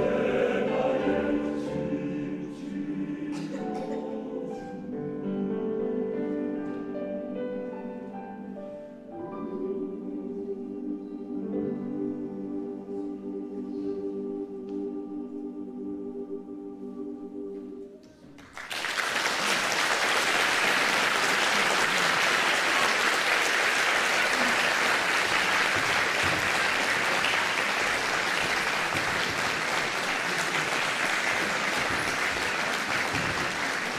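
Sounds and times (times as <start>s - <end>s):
audience applause: 18.4s - 33.9s.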